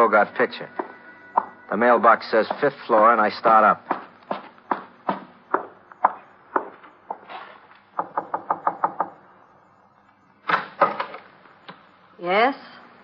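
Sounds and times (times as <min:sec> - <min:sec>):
footsteps climbing stairs: 0:02.3 - 0:03.1, 0:03.8 - 0:08.7
knocking on a door: 0:03.8 - 0:07.2, 0:08.0 - 0:09.2.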